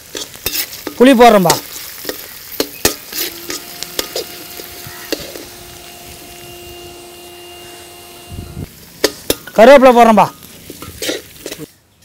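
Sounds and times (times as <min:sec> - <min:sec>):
ladle scraping iron pan: 0:00.0 - 0:08.0, 0:10.6 - 0:11.7
frying in oil sizzling: 0:00.0 - 0:12.0.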